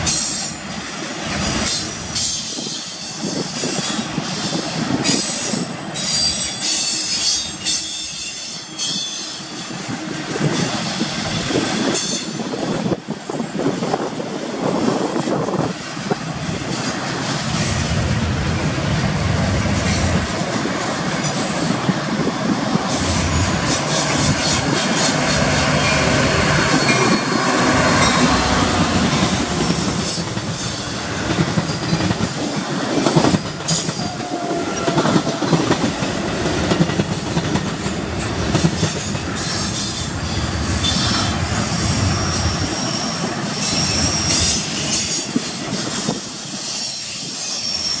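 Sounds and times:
commuter train rolling by: 0.0 - 48.0
freight train rolling past: 0.0 - 48.0
high-pitched wheel squeal: 22.9 - 30.9, 45.9 - 48.0.

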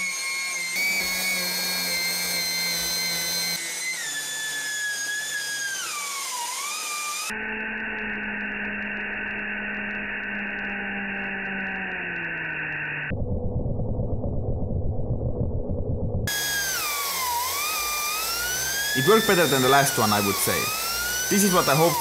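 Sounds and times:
gas turbine whine: 12.6 - 17.0.

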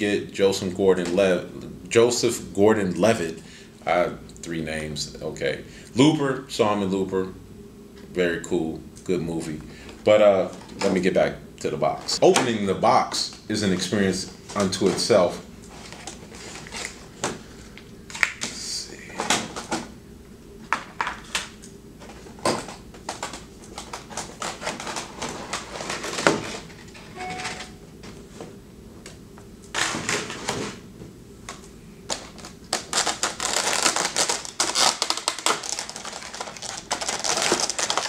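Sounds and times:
plastic crinkling and rustling: 13.2 - 18.3, 20.8 - 27.0, 32.1 - 38.0.

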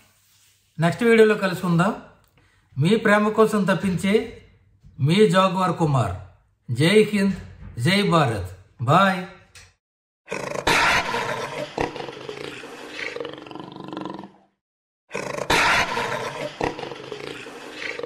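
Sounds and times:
big cat roaring: 10.3 - 18.0.

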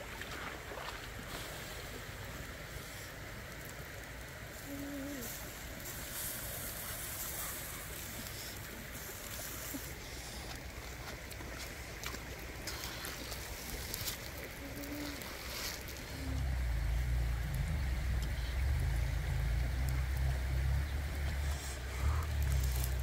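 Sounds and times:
water flowing over rocks: 0.0 - 23.0.

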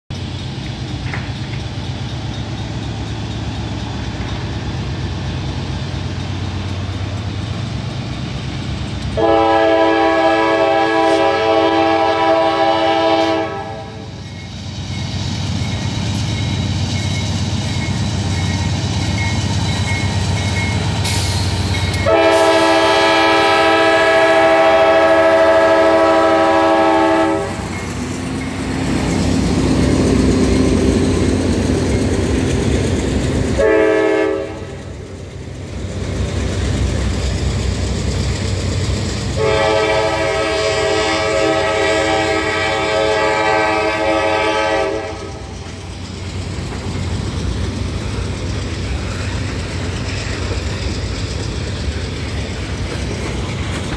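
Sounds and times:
diesel locomotive engines rumbling: 0.0 - 53.9
train horn blasts: 9.2 - 14.1, 22.0 - 27.8, 33.5 - 34.8, 39.4 - 45.4.

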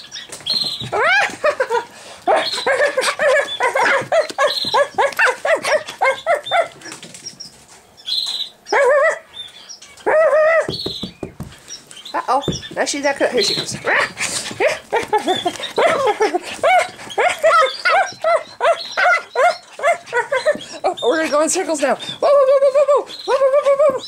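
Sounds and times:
birds chirping: 0.0 - 24.0
puppy barking and yipping: 2.3 - 7.0, 13.8 - 21.4.

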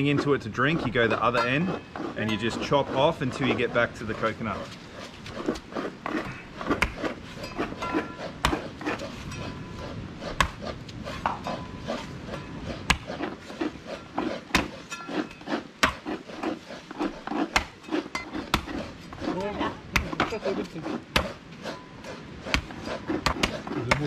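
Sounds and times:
knife chopping coconut husk: 0.0 - 24.0.

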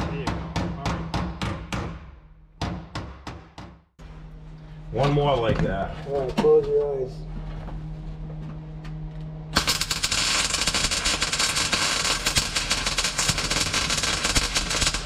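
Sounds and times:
welding arc crackling and sizzling: 9.6 - 15.0.

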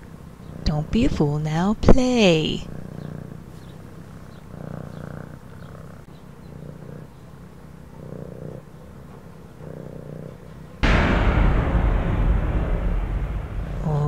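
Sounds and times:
cat purring: 2.4 - 10.6.

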